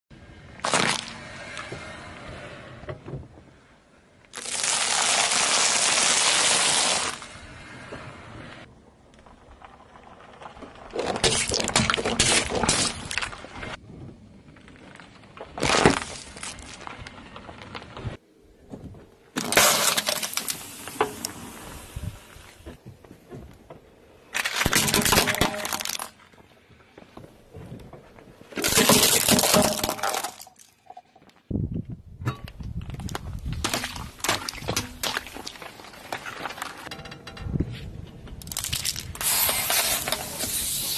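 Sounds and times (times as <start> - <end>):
car tyre crushing popcorn: 0.6 - 1.5, 15.4 - 17.8, 19.4 - 20.7, 24.4 - 26.2, 28.5 - 30.6, 38.4 - 40.4
plastic toys crunching under tyre: 0.6 - 1.7, 4.3 - 7.3, 9.2 - 13.8, 14.5 - 18.2, 19.3 - 20.9, 24.3 - 26.2, 28.5 - 30.8, 32.7 - 36.9, 38.3 - 40.9.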